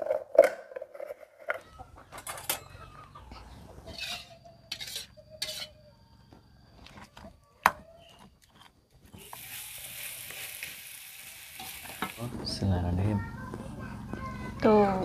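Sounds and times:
metal spatula stirring in wok: 3.9s - 5.7s
stone pestle scraping in mortar: 3.9s - 5.7s
frying sizzle: 9.1s - 12.7s.

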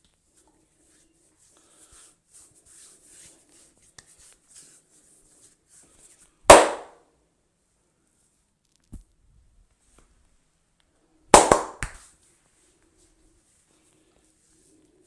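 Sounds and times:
hands rubbing hair and skin: 0.0s - 6.8s, 11.4s - 15.0s
loud sharp crack: 6.5s - 7.0s, 11.4s - 11.9s.

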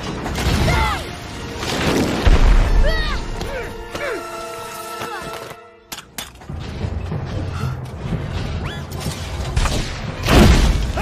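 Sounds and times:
orchestral music: 0.0s - 11.0s.

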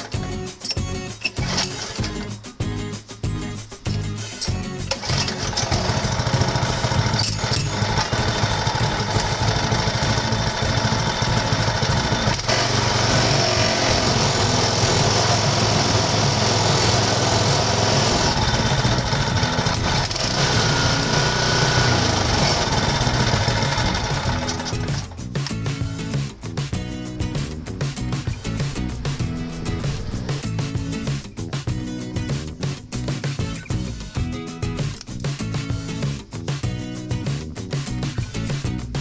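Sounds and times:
recoil starter pull: 0.0s - 2.4s, 3.9s - 26.3s
tiller engine running: 0.0s - 2.4s, 4.4s - 33.7s.

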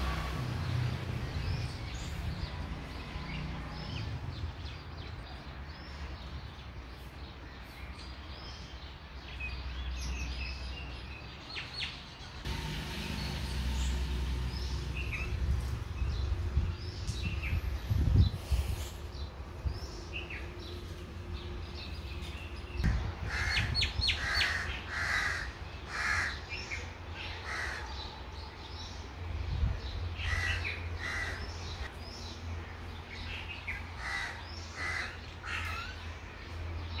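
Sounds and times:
small birds chirping: 0.0s - 37.0s
crows cawing: 23.3s - 26.4s, 27.4s - 27.9s, 30.3s - 31.4s, 34.0s - 35.9s.

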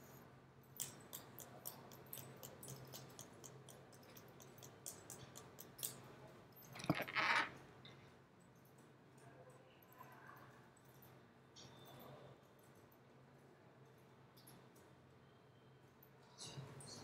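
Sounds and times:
computer keys typing: 0.7s - 7.6s.

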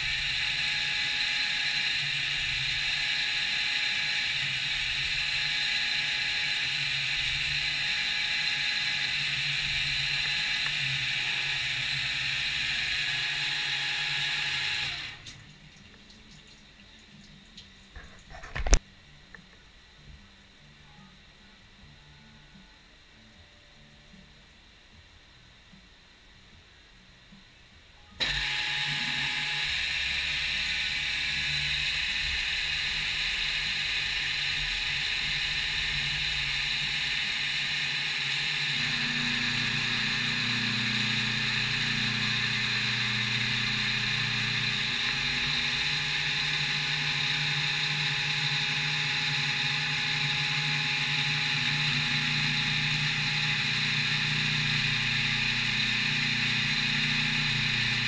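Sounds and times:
milling machine whirring: 0.0s - 15.3s, 28.2s - 58.0s.

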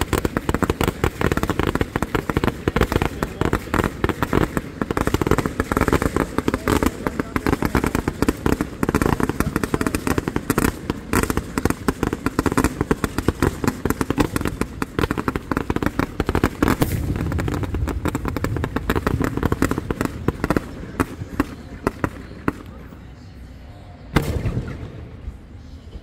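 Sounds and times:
fireworks bangs and crackles: 0.0s - 23.2s, 24.1s - 25.6s.

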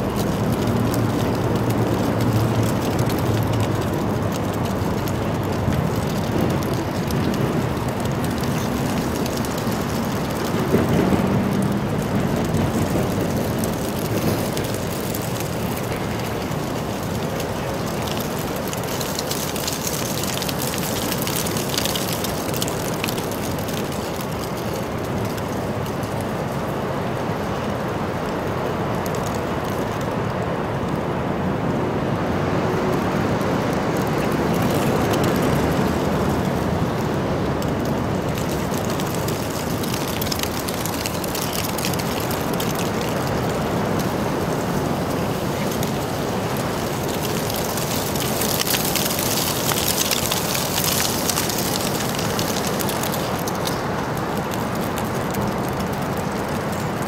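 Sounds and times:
street traffic: 0.0s - 57.0s
fine crackling rattle: 45.5s - 57.0s.

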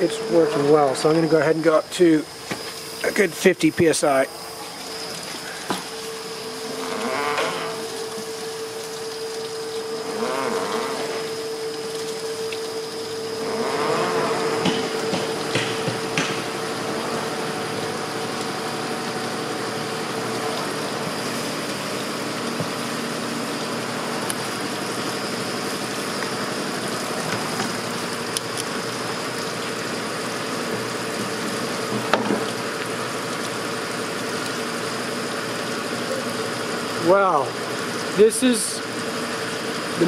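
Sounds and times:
screw press machine hum: 13.2s - 18.9s.

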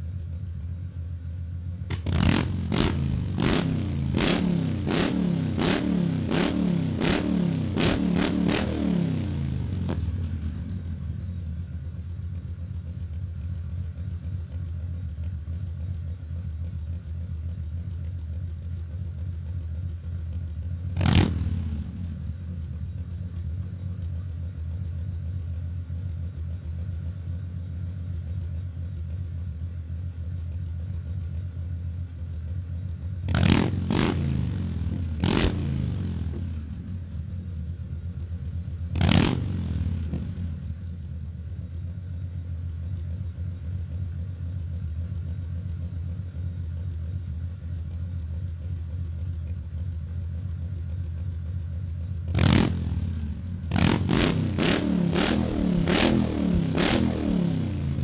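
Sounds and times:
motorcycle engine idling: 0.0s - 58.0s
engine throttle blips: 52.0s - 58.0s.

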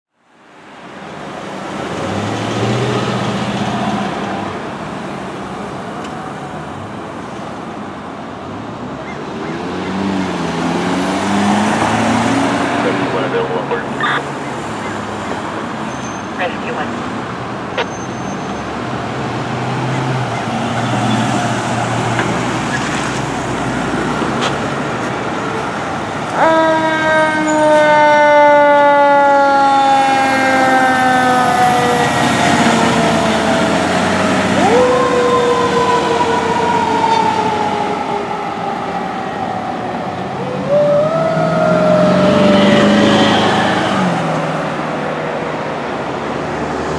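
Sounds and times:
truck engine and road noise: 0.1s - 46.9s
fire engine siren: 10.9s - 17.0s, 25.3s - 44.8s.

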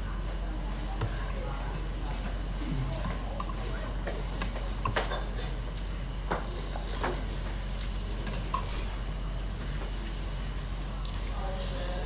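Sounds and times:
restaurant room noise: 0.0s - 12.0s
spoon and chopsticks clinking bowl: 4.8s - 5.6s.

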